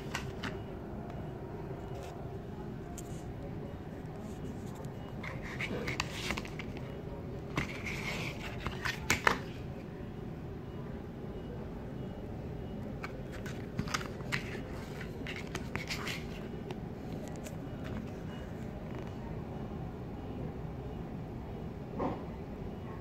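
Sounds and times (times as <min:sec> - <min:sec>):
packaging clicks and taps: 0:00.0 - 0:00.6, 0:13.0 - 0:16.4.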